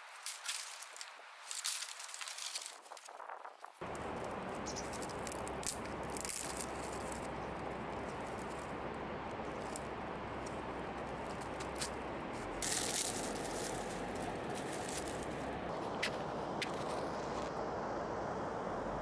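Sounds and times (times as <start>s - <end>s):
twigs rustling and crackling: 0.0s - 17.5s
rushing background noise: 3.8s - 19.0s.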